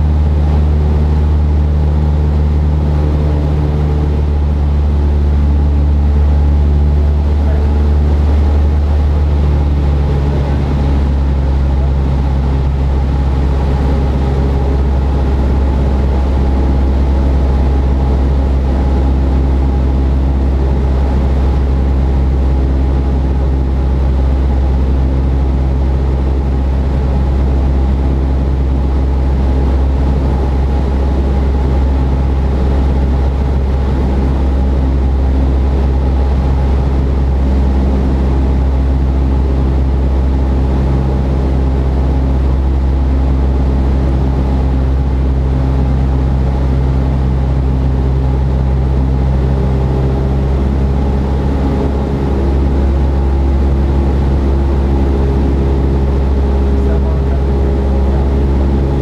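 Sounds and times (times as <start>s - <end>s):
propeller plane engine drone in cabin: 0.0s - 59.0s.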